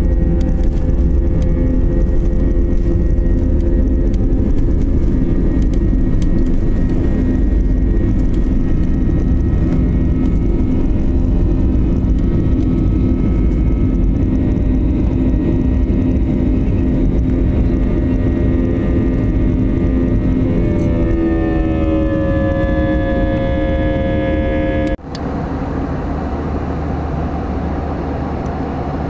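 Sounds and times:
jet engines roaring: 0.0s - 29.0s.

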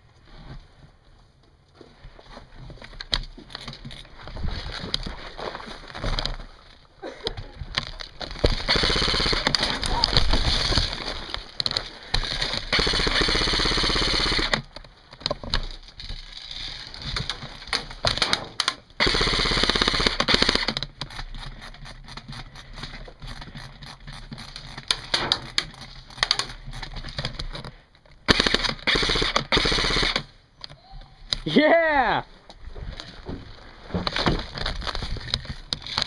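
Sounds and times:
airsoft rifle full-auto bursts: 8.5s - 11.0s, 12.2s - 14.7s, 19.0s - 20.8s, 28.2s - 30.3s.

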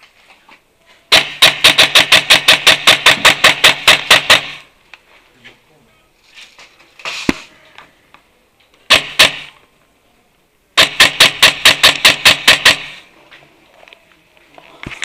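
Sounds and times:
airsoft rifle shots: 1.1s - 4.7s, 8.9s - 9.6s, 10.8s - 13.1s.

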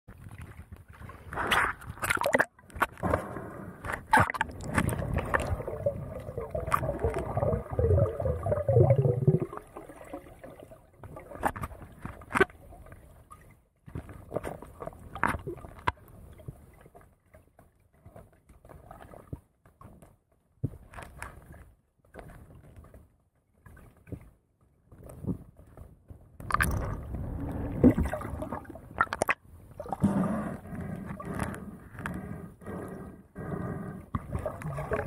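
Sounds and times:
water sloshing and gurgling: 0.1s - 35.0s
bubbling: 4.0s - 11.4s, 26.4s - 35.0s
underwater clicks and taps: 26.4s - 27.0s.

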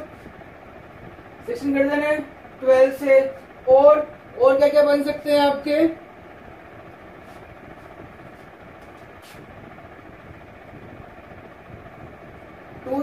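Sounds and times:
low background rumble: 0.0s - 13.0s
marker strokes on whiteboard: 7.2s - 9.5s.

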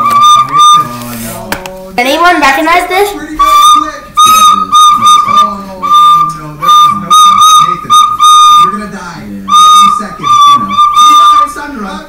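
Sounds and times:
high-pitched whistle toots: 0.0s - 0.9s, 3.4s - 8.8s, 9.5s - 11.6s.

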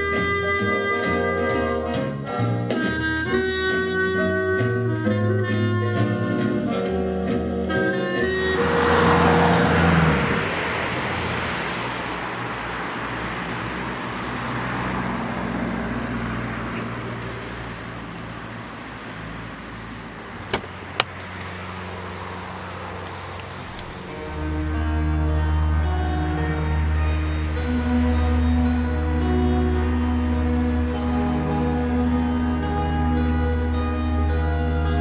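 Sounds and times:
car road noise: 0.0s - 35.0s.

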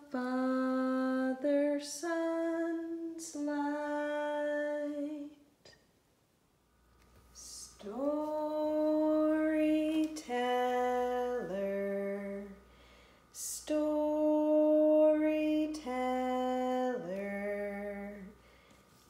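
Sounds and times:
woman singing unaccompanied: 0.0s - 5.5s, 7.4s - 12.6s, 13.4s - 18.4s
singer breathing: 12.6s - 13.4s, 18.4s - 19.0s.

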